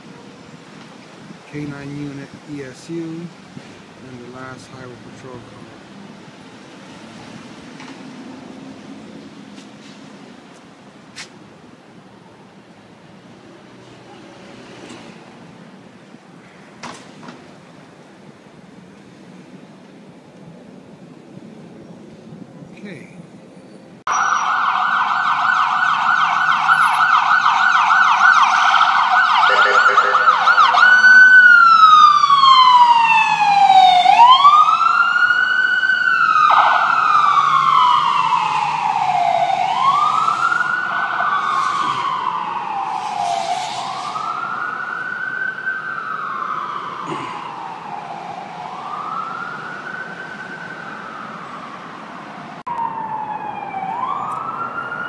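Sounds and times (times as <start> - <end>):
emergency vehicle siren: 24.1 - 55.0.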